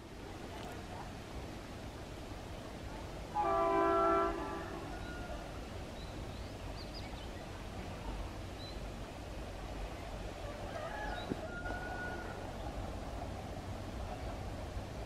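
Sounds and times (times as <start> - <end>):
locomotive horn blast: 3.4 - 4.9.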